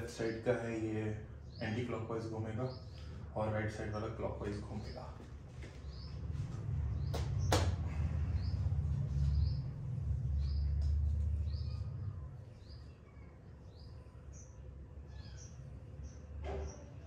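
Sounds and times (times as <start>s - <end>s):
low handling rumble: 2.9s - 13.2s
small bird chirping: 8.3s - 17.0s.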